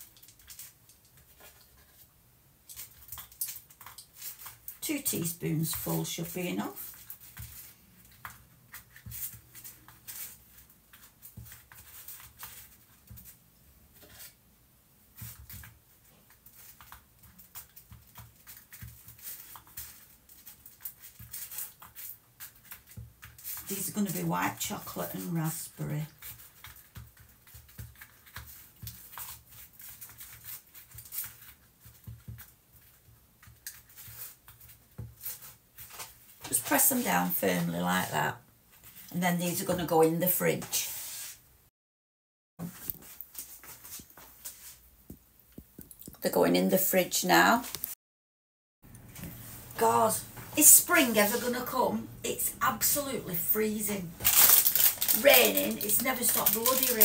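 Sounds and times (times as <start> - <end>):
teaspoon scraping and tapping in paper cases: 54.2 - 57.0.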